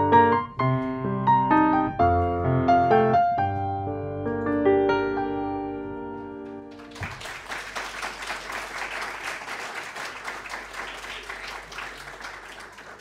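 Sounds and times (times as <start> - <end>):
audience applause: 6.7 - 13.0.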